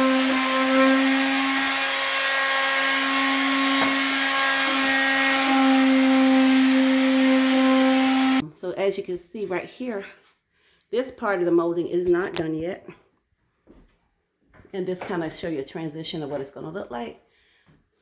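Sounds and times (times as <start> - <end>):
electric sander motor hum: 0.0 - 8.4.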